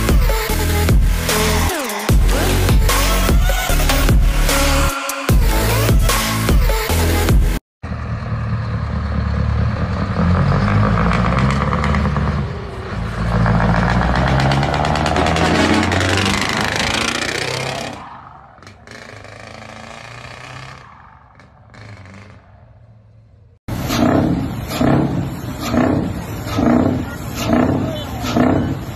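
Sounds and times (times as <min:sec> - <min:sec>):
truck engine passing: 0:07.8 - 0:28.9.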